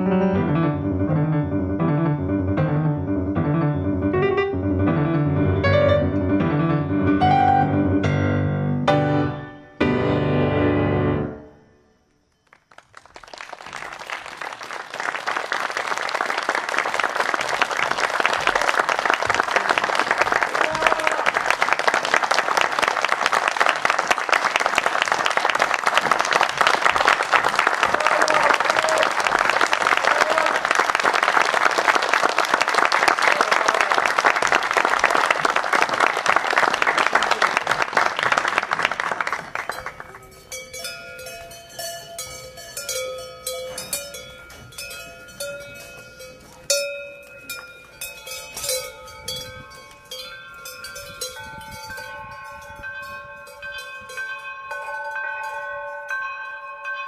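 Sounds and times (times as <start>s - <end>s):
audience applauding: 12.4s - 40.6s
gentle bell-like chime music: 39.7s - 57.0s.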